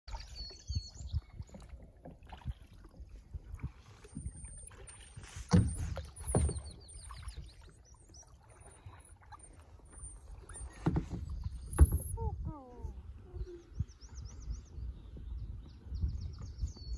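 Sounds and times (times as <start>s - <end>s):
paddles splashing in water: 0.1s - 12.2s.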